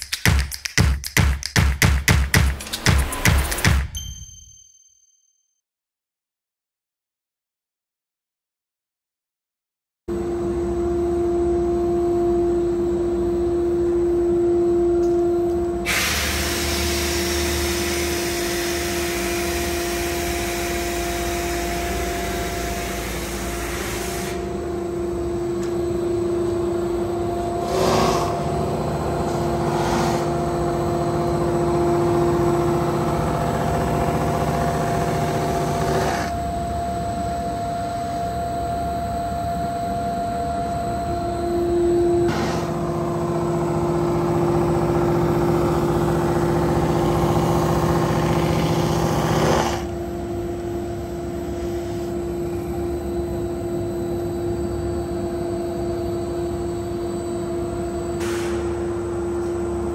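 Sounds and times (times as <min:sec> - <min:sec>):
machine motors humming: 0:17.4 - 0:59.9.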